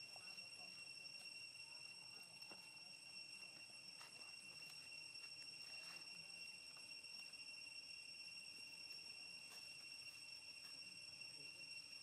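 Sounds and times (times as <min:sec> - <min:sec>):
high-pitched insect drone: 0:00.0 - 0:12.0.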